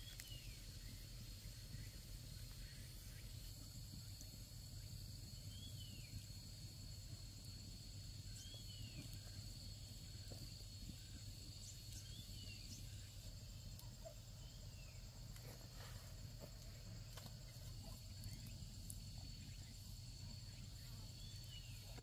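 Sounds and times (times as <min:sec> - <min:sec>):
high insect drone: 0:00.0 - 0:22.0
low steady rumble: 0:00.0 - 0:22.0.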